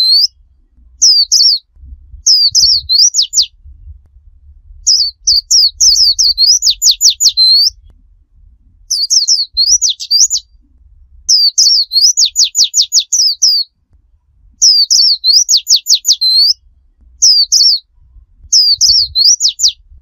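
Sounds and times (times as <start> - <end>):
bird singing whistled notes: 0.0 - 3.9, 4.8 - 7.9, 8.8 - 13.8, 14.6 - 20.0.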